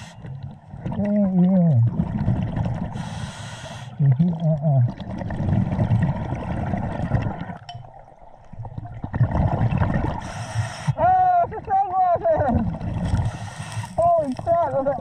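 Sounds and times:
diver inhaling through regulator: 2.9 - 4.0, 10.2 - 11.0, 13.1 - 14.0
gurgling exhaust bubbles: 4.0 - 7.6.

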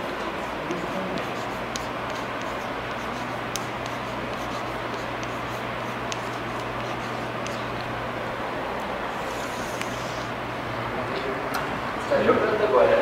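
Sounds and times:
chalk tapping and scratching: 0.0 - 7.9
steady hiss and low hum: 0.0 - 13.0.

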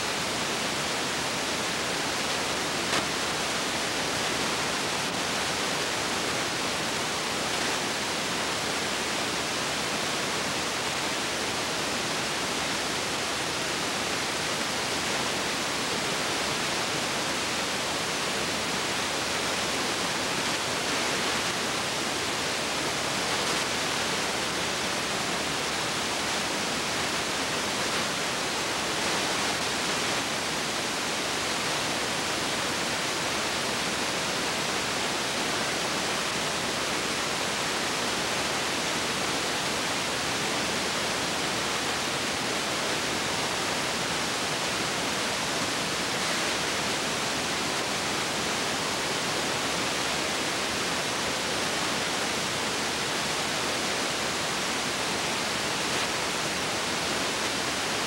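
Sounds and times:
steady film hiss: 0.0 - 58.0.

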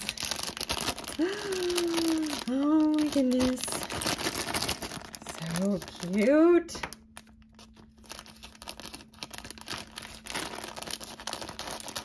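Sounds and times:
scissors cutting plastic: 0.0 - 6.3
plastic bag crinkling: 0.0 - 12.0.

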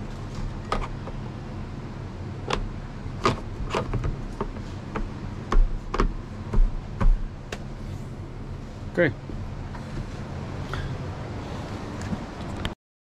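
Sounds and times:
steady low hum: 0.0 - 12.8
sharp knocks and clicks: 2.5 - 7.7.

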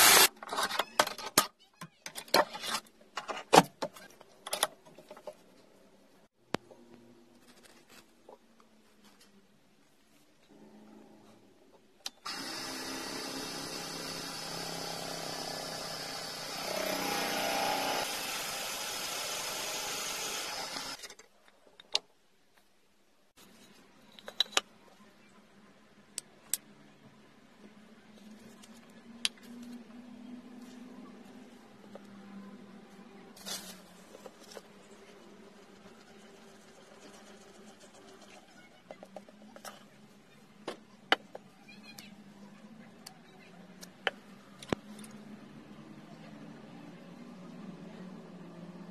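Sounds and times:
electric drill boring into wood: 0.0 - 0.3, 12.2 - 21.0.

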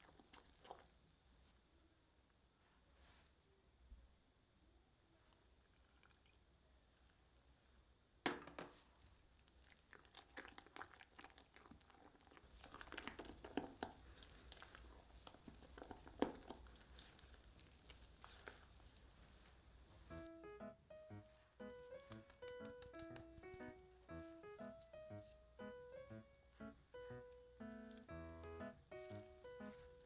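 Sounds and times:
spatula folding wet batter: 11.6 - 20.1.

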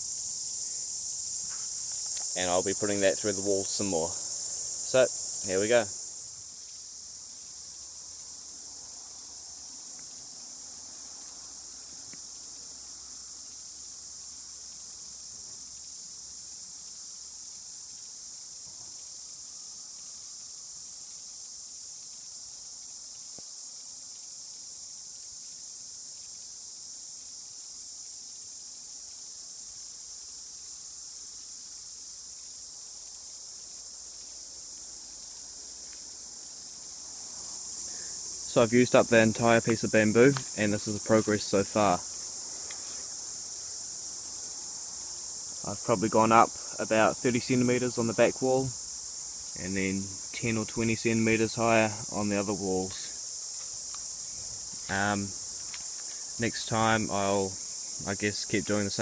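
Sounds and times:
cicadas chorus: 0.0 - 59.0.

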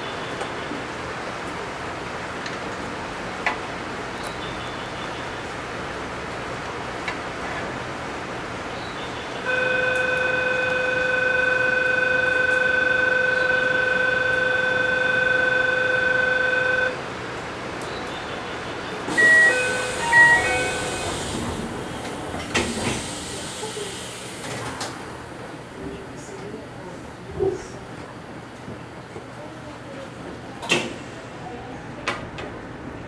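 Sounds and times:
electronic warning tone: 9.5 - 17.0, 19.1 - 21.2
hiss of air: 22.5 - 24.6.

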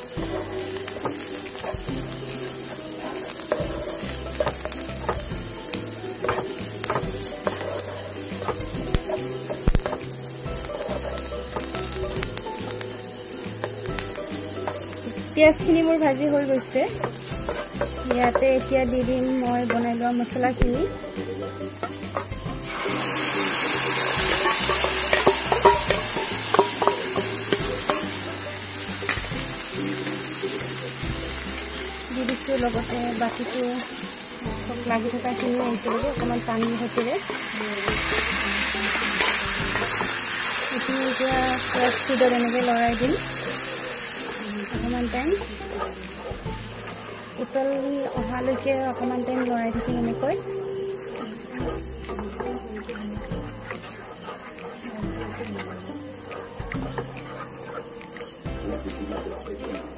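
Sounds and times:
spatula scraping a pan: 0.0 - 15.3, 15.9 - 19.9, 21.0 - 44.4, 45.1 - 47.4, 51.1 - 59.9
onions sizzling: 0.0 - 59.9
spatula scraping a steel bowl: 6.2 - 10.0, 17.0 - 18.4, 21.8 - 28.3.

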